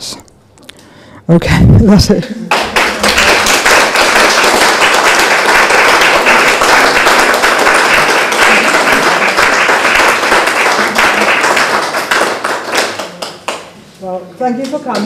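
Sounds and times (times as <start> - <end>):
audience applauding: 2.5 - 13.8.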